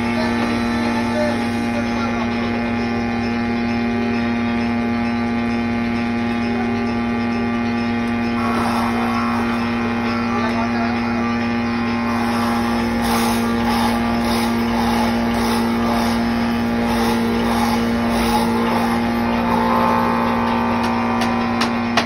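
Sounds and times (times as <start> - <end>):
machine motor humming: 0.0 - 22.0
rapid hissing pulse: 8.3 - 21.3.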